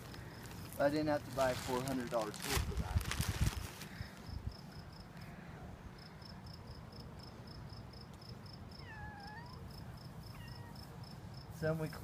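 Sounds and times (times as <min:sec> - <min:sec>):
low outdoor rumble: 0:00.0 - 0:08.8.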